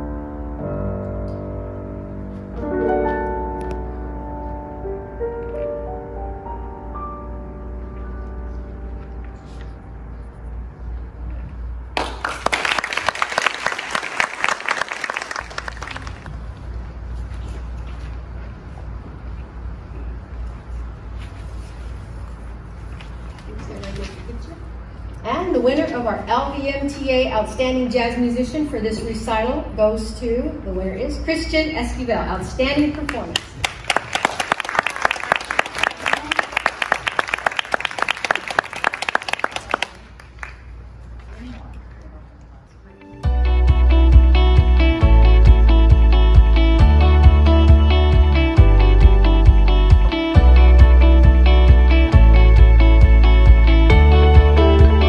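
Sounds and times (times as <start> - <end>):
piano piece: 0.0 - 12.6, 42.9 - 55.0
audience applauding: 12.0 - 16.5, 33.4 - 40.9.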